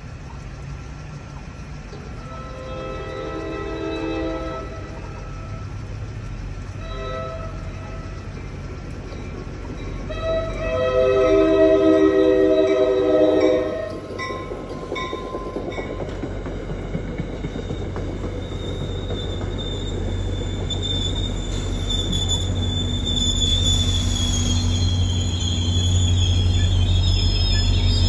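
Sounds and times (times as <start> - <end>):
low train rumble: 0.0 - 28.0
train wheel squeal: 1.9 - 28.0
train horn: 2.2 - 5.8, 6.8 - 8.3, 10.1 - 14.1.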